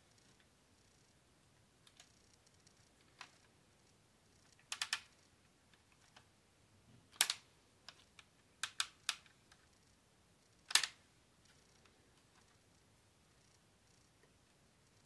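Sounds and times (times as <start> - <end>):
plastic clicks and snaps: 4.4 - 5.1, 7.1 - 9.6, 10.7 - 11.6.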